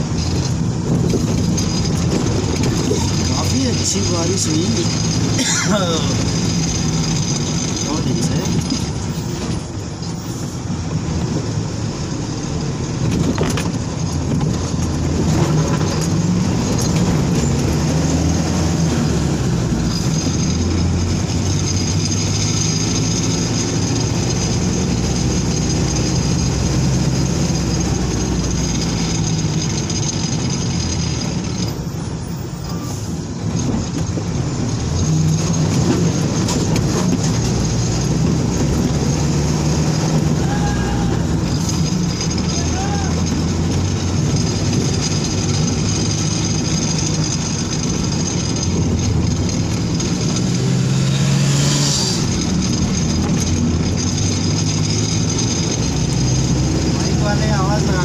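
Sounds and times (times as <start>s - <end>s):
truck engine from inside cab: 0.0s - 58.0s
knocks from bumpy road: 12.9s - 18.1s.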